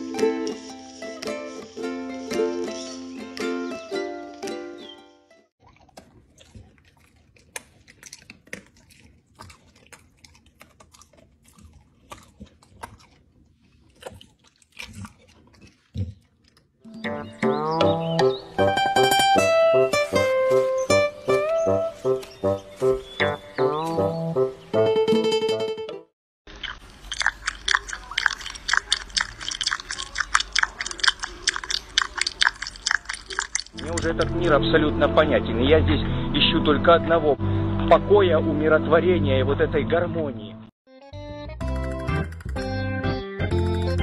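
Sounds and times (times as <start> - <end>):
pet crunching dry kibble: 5.6 - 16.9, 26.5 - 34.4
cats licking fur: 26.6 - 34.3.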